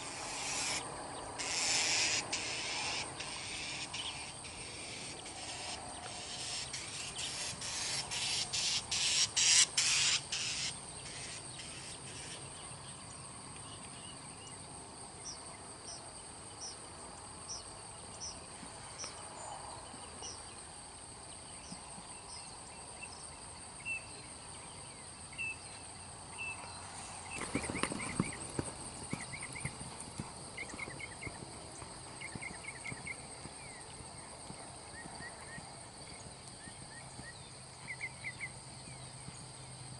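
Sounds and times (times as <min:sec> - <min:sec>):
birds chirping: 0:00.0 - 0:13.0, 0:26.4 - 0:39.5
insects buzzing high-pitched: 0:00.0 - 0:13.1, 0:15.2 - 0:39.9.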